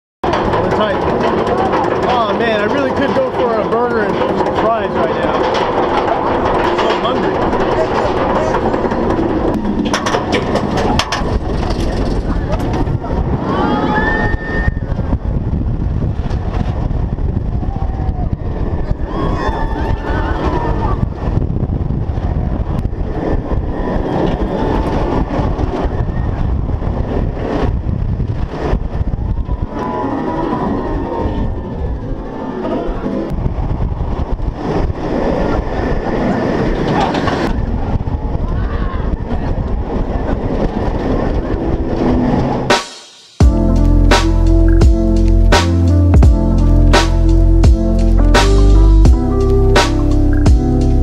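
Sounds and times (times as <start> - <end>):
wind on microphone: 0.2 - 42.7
roller coaster rumbling on track: 0.2 - 42.8.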